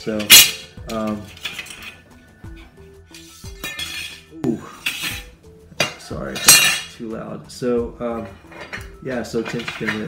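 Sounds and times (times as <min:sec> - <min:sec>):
frame rails clinking and rubbing: 0:08.4 - 0:10.0.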